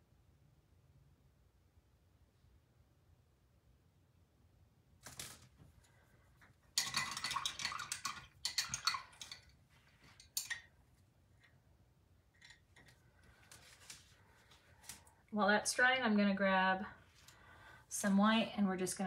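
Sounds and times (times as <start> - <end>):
paintbrush rattling in brush cup: 6.8 - 10.7.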